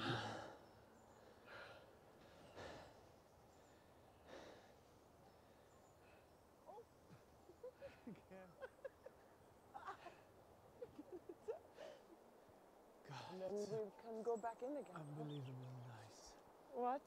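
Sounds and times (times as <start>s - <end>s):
faint bird chirps: 0.0s - 10.2s, 13.3s - 17.0s.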